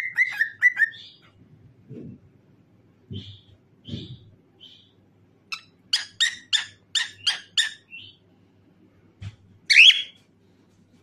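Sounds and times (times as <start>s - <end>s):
cockatiel chirping: 0.0s - 1.2s, 5.5s - 8.2s, 9.7s - 10.2s.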